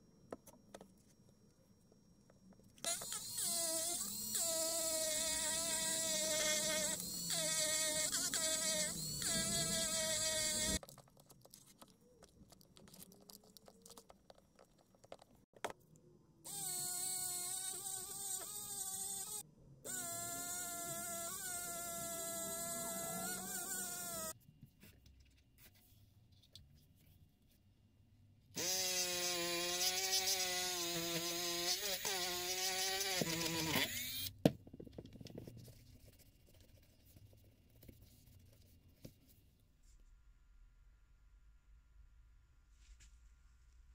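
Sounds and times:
rotary tool whine: 5.6s - 10.8s, 31.7s - 34.3s.

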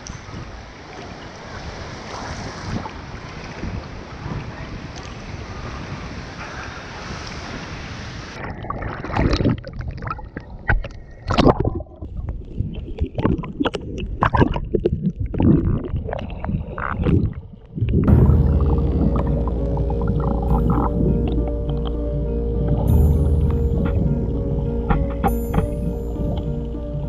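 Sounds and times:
water gurgling and sloshing: 0.0s - 4.4s, 8.3s - 27.0s
wind and surf: 0.0s - 9.5s
background music: 18.1s - 27.0s.

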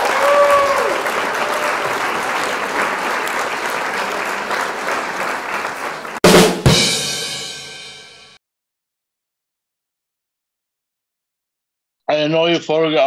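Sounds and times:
applause: 0.0s - 6.5s
heavy drum hits: 6.2s - 8.1s.

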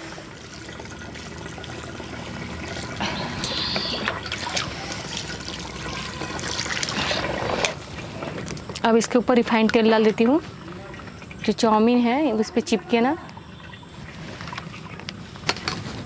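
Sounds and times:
water pouring into colander: 0.0s - 8.1s.

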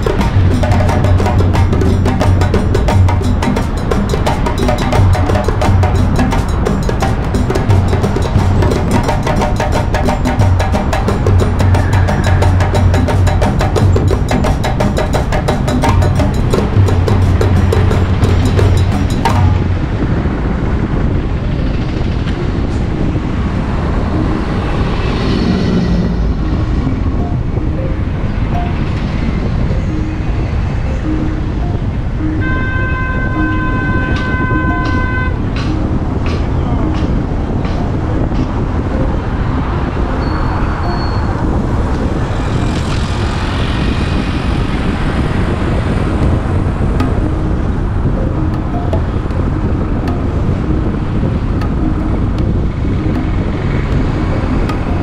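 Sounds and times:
road and wind noise from vehicle: 0.0s - 55.0s
surrounding traffic: 0.0s - 55.0s.

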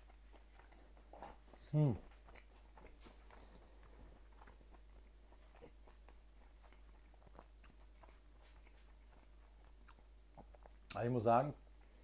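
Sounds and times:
faint chewing: 0.0s - 11.0s.

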